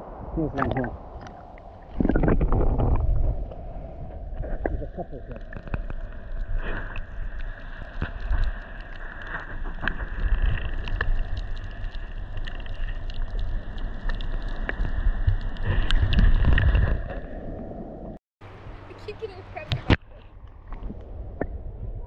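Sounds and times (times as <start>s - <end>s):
underwater rumbling and sloshing: 0.0s - 18.9s, 19.6s - 22.0s
small clicks and ticks: 5.4s - 16.6s.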